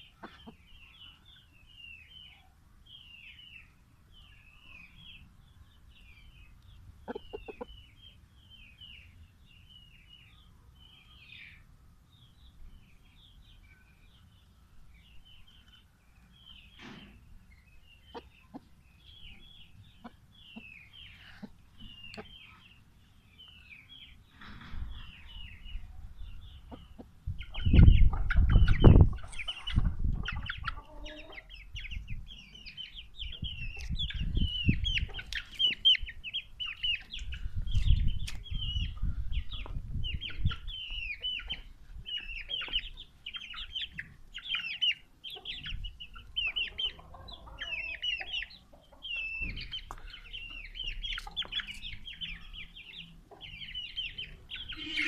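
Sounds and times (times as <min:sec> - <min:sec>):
hen clucking: 0:00.0 - 0:01.0, 0:07.0 - 0:08.1, 0:18.0 - 0:22.8, 0:26.4 - 0:38.0, 0:38.6 - 0:55.0
chicks peeping: 0:00.0 - 0:55.0.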